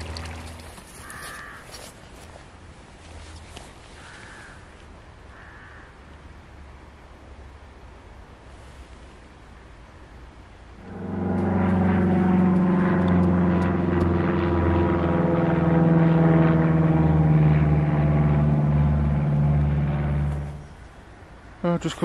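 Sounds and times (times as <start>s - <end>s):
propeller plane engine drone: 0.0s - 1.2s, 10.6s - 21.6s.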